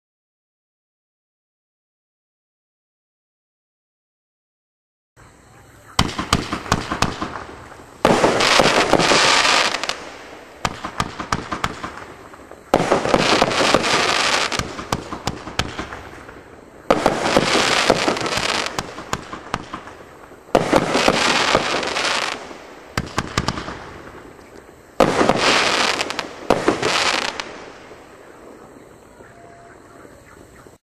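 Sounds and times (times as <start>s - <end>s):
dense fireworks crackling: 5.4s - 30.8s
fireworks cake firing volleys: 5.8s - 29.2s.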